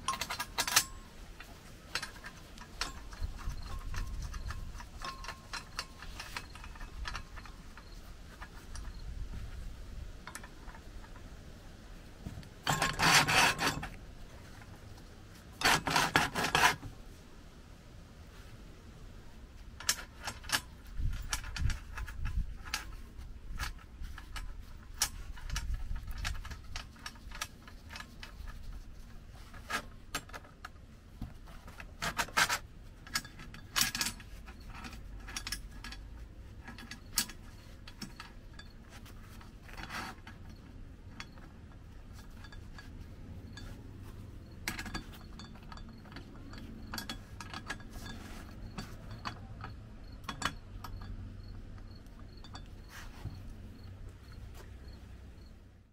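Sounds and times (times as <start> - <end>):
metal clicks and clanks: 0.0 - 9.6, 10.2 - 11.3, 12.2 - 16.9, 19.8 - 55.6
metal scraping: 12.2 - 16.9, 31.2 - 55.6.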